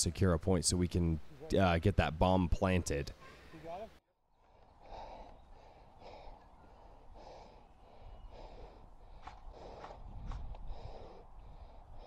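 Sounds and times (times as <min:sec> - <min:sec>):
person breathing hard: 0:04.4 - 0:12.0.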